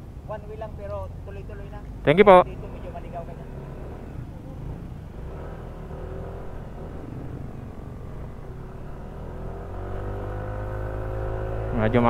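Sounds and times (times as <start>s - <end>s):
low road rumble: 0.0s - 12.0s
scooter engine running: 2.5s - 12.0s.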